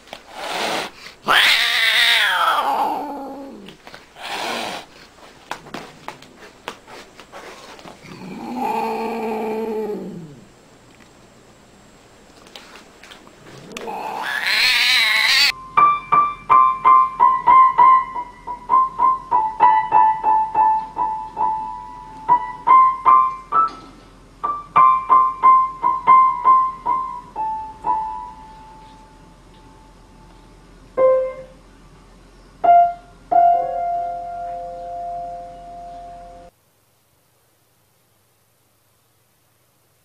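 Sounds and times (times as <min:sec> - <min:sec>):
piano notes struck by cat: 0:15.6 - 0:28.8.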